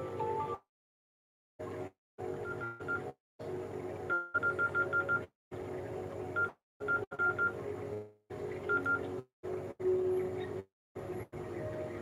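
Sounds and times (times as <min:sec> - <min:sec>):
phone keypad beeps: 0:08.7 - 0:09.0.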